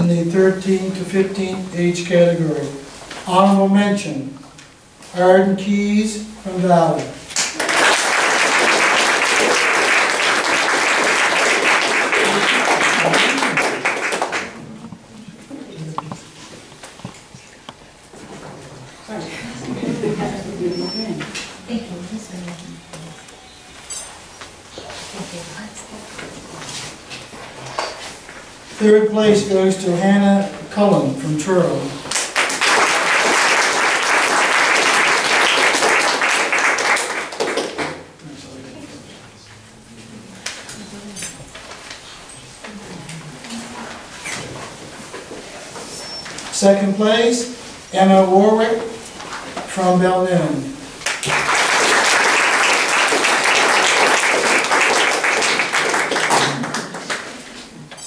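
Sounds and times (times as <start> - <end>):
audience applauding: 7.4 - 14.8, 32.1 - 38.0, 51.0 - 57.4.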